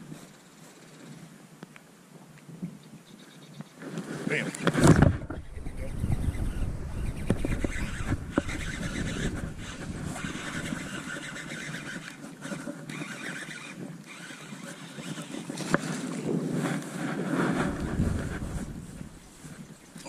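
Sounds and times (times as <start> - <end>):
choppy water: 3.8 - 20.0
gusty wind buffeting microphone: 3.8 - 20.0.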